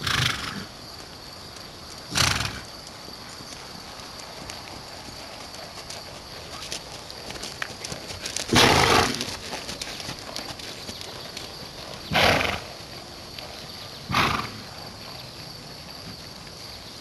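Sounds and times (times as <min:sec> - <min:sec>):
horse snorting: 0:00.0 - 0:00.7, 0:02.1 - 0:02.7, 0:08.5 - 0:09.6, 0:11.8 - 0:12.9, 0:14.1 - 0:14.8
hoofbeats on sand: 0:00.0 - 0:17.0.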